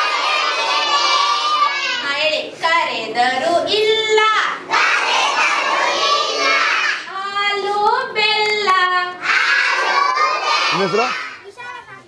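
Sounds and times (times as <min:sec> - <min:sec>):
children singing and chanting: 0:00.0 - 0:02.1, 0:03.8 - 0:07.7, 0:09.1 - 0:11.5.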